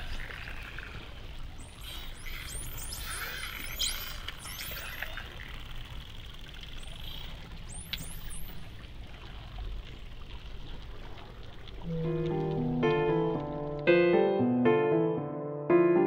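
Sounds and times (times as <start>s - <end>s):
underwater watery wash: 0.0s - 13.9s
dolphin whistles: 1.6s - 5.2s, 7.0s - 8.7s.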